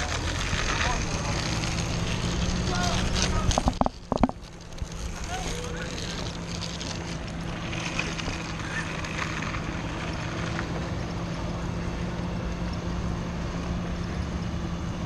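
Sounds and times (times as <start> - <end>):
bicycle tyre road noise: 0.0 - 15.0
bike basket rattling: 0.9 - 10.2.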